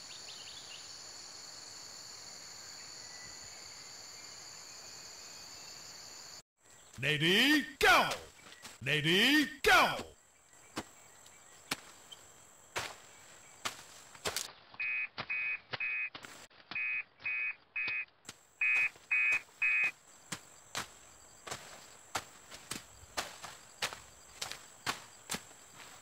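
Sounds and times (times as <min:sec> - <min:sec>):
blade chopping undergrowth: 0:11.6 - 0:12.1, 0:12.7 - 0:16.9, 0:20.3 - 0:26.0
short electronic beeps: 0:14.8 - 0:16.1, 0:16.8 - 0:19.9.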